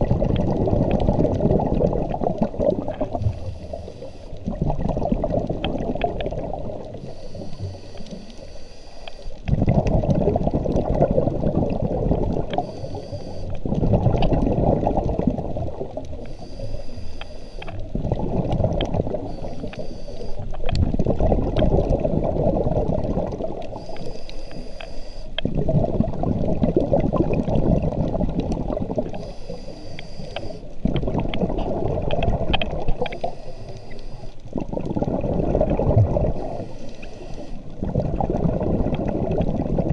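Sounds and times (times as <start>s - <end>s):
exhaled bubbles rushing: 0.0s - 7.2s, 9.4s - 12.7s, 13.5s - 16.3s, 17.8s - 19.8s, 20.5s - 24.0s, 25.4s - 29.3s, 30.6s - 33.4s, 34.3s - 36.7s, 37.6s - 39.9s
regulator inhale hiss: 3.2s - 4.5s, 7.0s - 9.4s, 12.6s - 13.6s, 16.1s - 17.8s, 19.2s - 20.5s, 23.7s - 25.4s, 29.1s - 30.8s, 33.0s - 34.4s, 36.3s - 37.8s.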